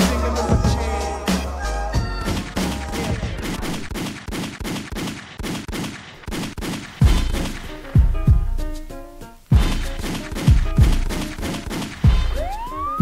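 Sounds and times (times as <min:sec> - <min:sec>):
gunfire cracks: 0:03.4 - 0:07.9, 0:09.6 - 0:12.4.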